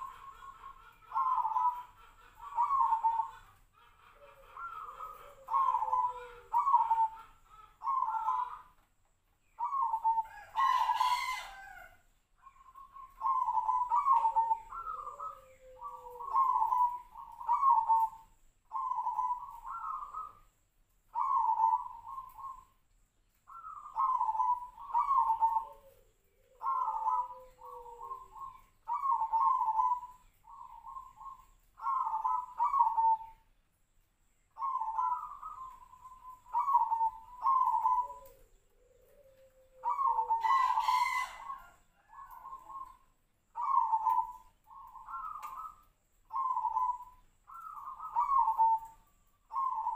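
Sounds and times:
dove cooing: 0:00.0 - 0:08.9, 0:09.5 - 0:22.8, 0:23.5 - 0:33.5, 0:34.5 - 0:49.9
lower falling bird call: 0:12.6 - 0:20.5, 0:21.1 - 0:22.8, 0:23.4 - 0:33.5, 0:34.5 - 0:49.9.

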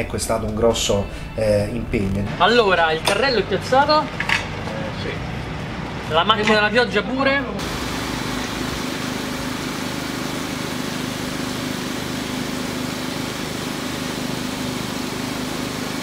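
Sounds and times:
engine running hum: 0:00.0 - 0:16.0
rain pouring on wet pavement: 0:07.6 - 0:09.9.

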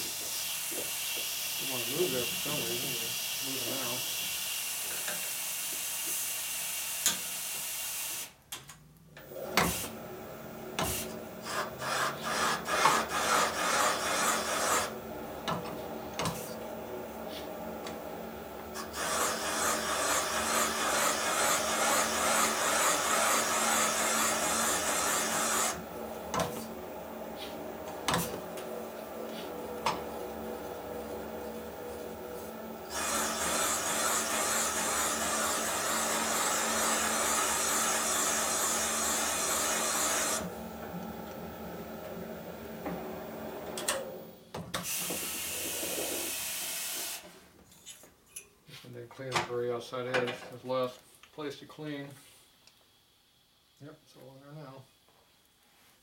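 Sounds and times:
faint machine hum: 0:08.8 - 0:44.7
cutter scraping metal: 0:11.4 - 0:15.0, 0:18.8 - 0:26.7, 0:32.9 - 0:40.5.

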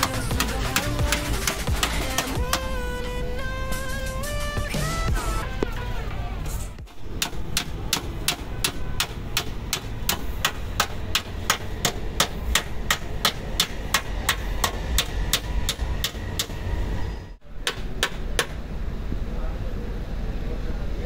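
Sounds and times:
hammer tapping on metal: 0:07.2 - 0:16.6, 0:17.6 - 0:18.6.

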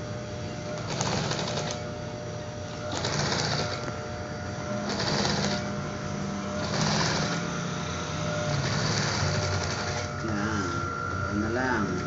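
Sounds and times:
sewing machine motor humming: 0:00.7 - 0:01.9, 0:02.9 - 0:03.9, 0:04.7 - 0:12.0
sewing machine needle stitching: 0:00.8 - 0:01.8, 0:02.9 - 0:03.8, 0:04.9 - 0:05.6, 0:06.6 - 0:07.4, 0:08.5 - 0:10.1.

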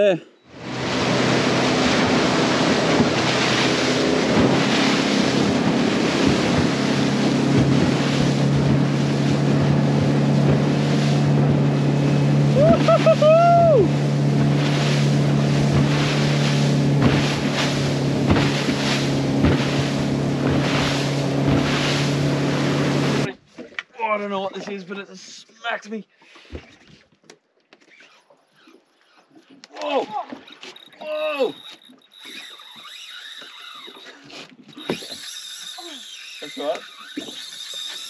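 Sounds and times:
boat motor running: 0:00.0 - 0:23.3, 0:28.3 - 0:38.0
water rushing past hull: 0:00.4 - 0:23.3
wind buffeting microphone: 0:00.6 - 0:23.3.

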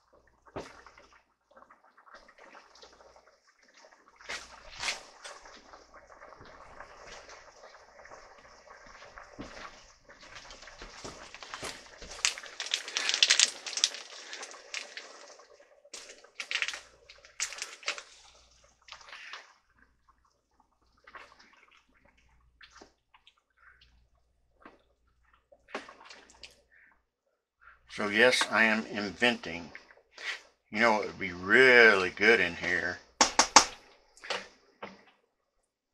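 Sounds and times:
liquid splashing: 0:00.0 - 0:26.7
broth simmering: 0:00.0 - 0:35.4
plastic bag crinkling: 0:10.5 - 0:15.4, 0:16.0 - 0:18.4.

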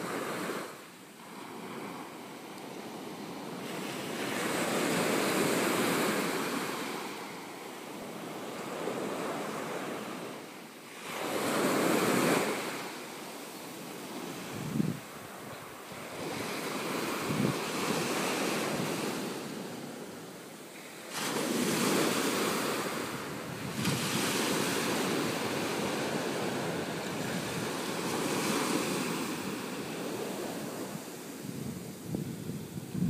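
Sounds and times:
small waves washing on shore: 0:00.0 - 0:33.0
wind buffeting microphone: 0:14.0 - 0:19.8, 0:21.4 - 0:33.0.

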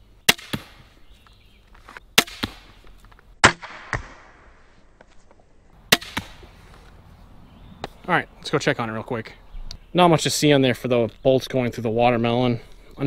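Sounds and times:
crossbow firing snap: 0:03.4 - 0:04.6, 0:05.9 - 0:06.4
bolt striking foam target: 0:05.9 - 0:06.4.

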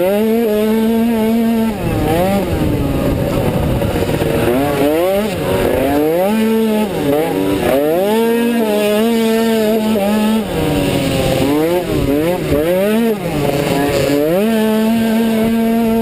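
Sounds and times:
scooter engine revving: 0:00.0 - 0:16.0
wind noise: 0:01.1 - 0:08.2.

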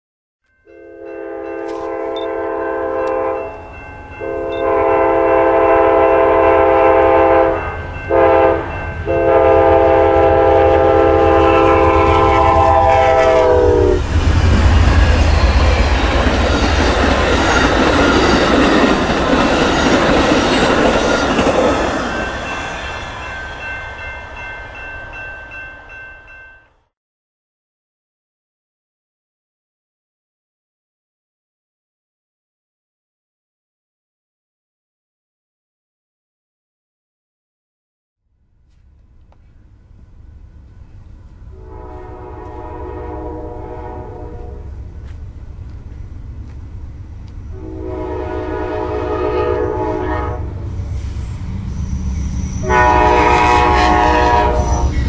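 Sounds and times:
train air horn blasts: 0:00.6 - 0:03.6, 0:04.2 - 0:15.7, 0:41.5 - 0:44.8, 0:47.5 - 0:50.6, 0:52.6 - 0:55.0
diesel locomotive rumble: 0:02.9 - 0:22.6
train wheel noise: 0:06.3 - 0:25.2, 0:38.7 - 0:55.0.

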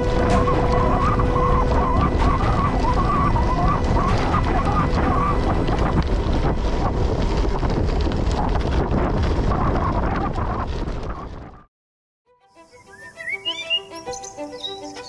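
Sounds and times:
tyres crunching on gravel: 0:00.0 - 0:09.5
wind buffeting microphone: 0:00.0 - 0:11.7.

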